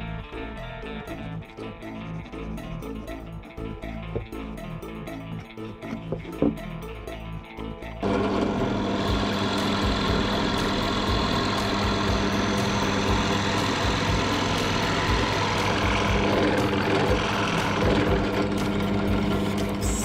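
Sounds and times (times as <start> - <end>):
drill press humming: 8.0 - 20.0.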